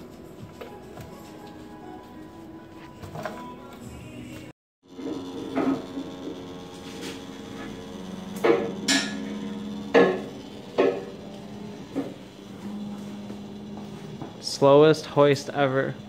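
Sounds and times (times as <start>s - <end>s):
hydraulic power unit humming: 0.0s - 16.0s
car lift metal clanks: 8.3s - 13.2s.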